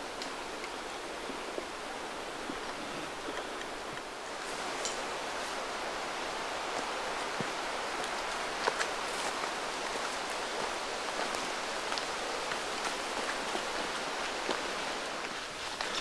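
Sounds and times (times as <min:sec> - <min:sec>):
wind and rain in forest: 0:00.0 - 0:16.0
footsteps crunching through leaves: 0:04.3 - 0:16.0.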